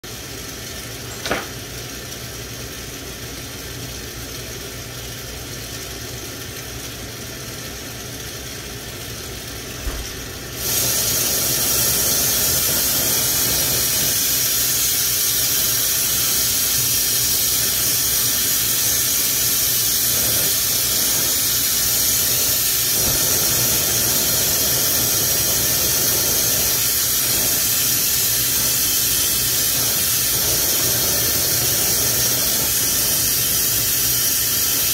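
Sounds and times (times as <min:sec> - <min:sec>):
torch flame hissing: 0:00.4 - 0:02.7, 0:09.4 - 0:34.9.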